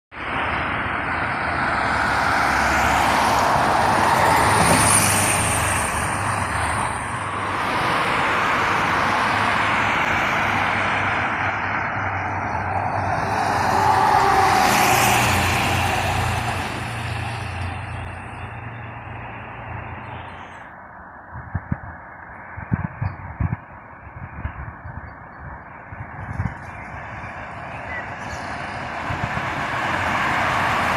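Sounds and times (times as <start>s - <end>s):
cars driving past: 0.2s - 24.9s, 25.7s - 30.9s
low engine hum: 0.2s - 30.9s.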